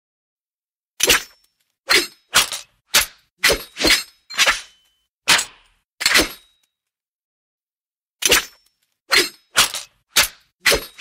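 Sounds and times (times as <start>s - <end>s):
metal sword blades clashing: 1.0s - 6.6s, 8.3s - 11.0s.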